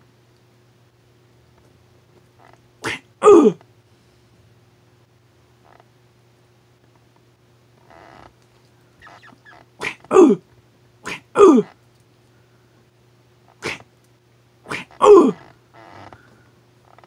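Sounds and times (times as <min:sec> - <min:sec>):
person making fight sound effects: 0:02.8 - 0:03.6, 0:09.8 - 0:10.4, 0:11.1 - 0:11.7, 0:14.7 - 0:15.4.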